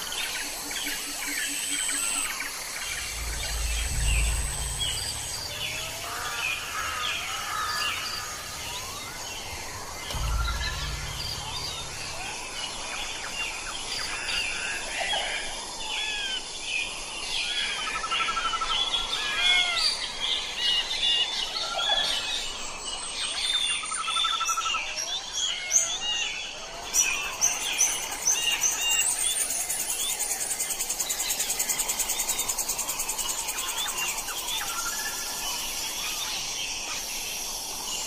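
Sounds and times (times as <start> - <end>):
small birds chirping and trilling: 0.0 - 14.5
high-pitched pulsing: 2.9 - 9.2, 10.1 - 13.0.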